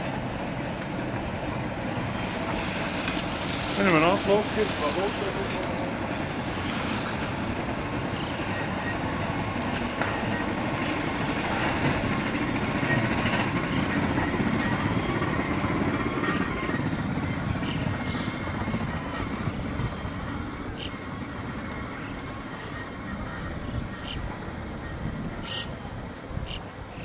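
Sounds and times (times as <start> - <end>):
rack train running past: 0.0 - 26.8.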